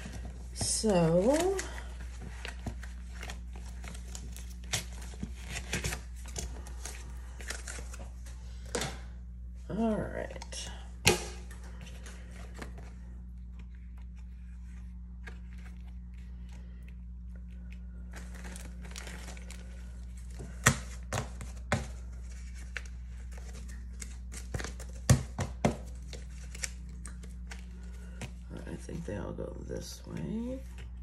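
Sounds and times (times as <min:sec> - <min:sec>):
plastic bag crinkling and tearing: 0:00.0 - 0:08.0, 0:17.9 - 0:25.1
steady low hum: 0:00.0 - 0:31.0.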